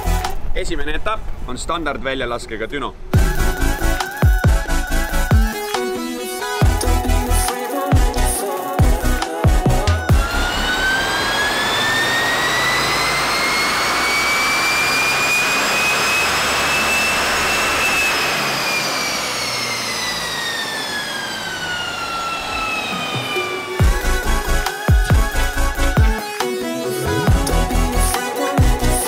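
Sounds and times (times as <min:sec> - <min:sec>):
turbo whine: 0:03.1 - 0:29.0
car engine revving: 0:05.6 - 0:26.0, 0:26.7 - 0:29.0.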